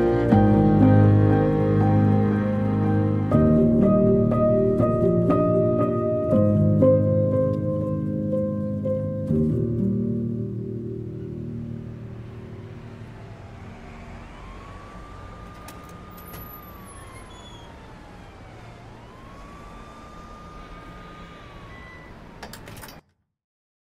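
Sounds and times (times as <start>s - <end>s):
emergency siren wailing: 0.0s - 8.3s, 10.8s - 22.4s
city street noise: 0.0s - 23.0s.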